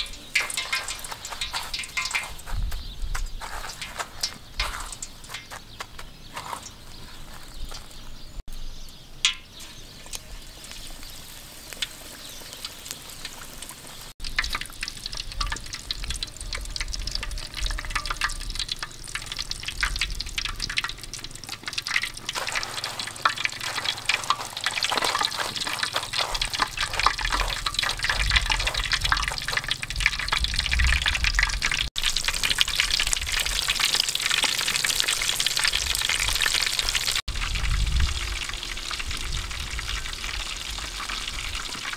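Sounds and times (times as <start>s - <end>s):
fish sizzling in hot oil: 0.0s - 6.9s, 8.5s - 41.9s
fish pressed into breadcrumbs: 12.4s - 37.2s.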